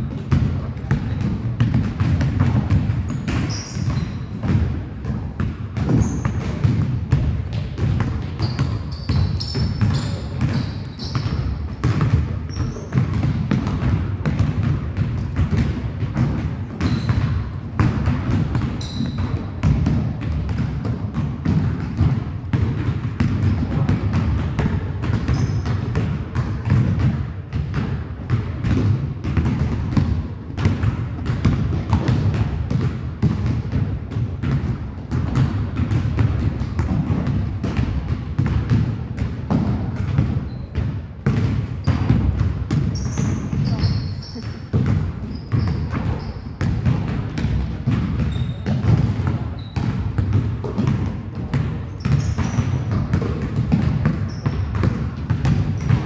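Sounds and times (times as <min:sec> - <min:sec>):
basketballs bouncing on hardwood: 0:00.0 - 0:56.0
sneaker squeaks: 0:03.0 - 0:04.7, 0:05.8 - 0:06.7, 0:08.2 - 0:13.3, 0:16.7 - 0:17.6, 0:18.6 - 0:19.6, 0:25.1 - 0:26.0, 0:40.3 - 0:40.9, 0:41.8 - 0:50.9, 0:51.7 - 0:53.3, 0:54.1 - 0:54.9.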